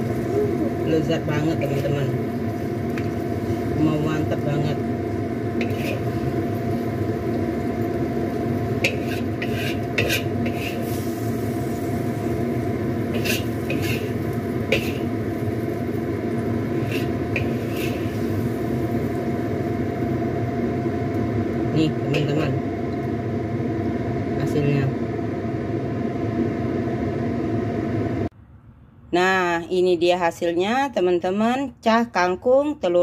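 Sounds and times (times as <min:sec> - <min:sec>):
steady hum: 0:00.0 - 0:33.0
spatula scraping a wok: 0:05.5 - 0:07.0, 0:08.7 - 0:12.4, 0:13.0 - 0:15.6, 0:16.5 - 0:19.1.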